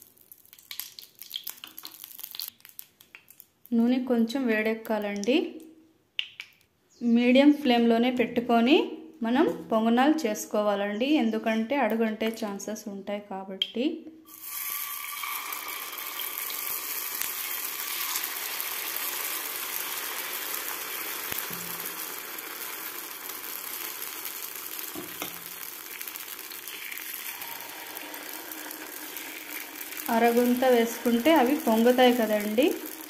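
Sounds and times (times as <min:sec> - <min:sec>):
batter sizzling in hot oil: 0:00.0 - 0:02.9, 0:14.3 - 0:33.0.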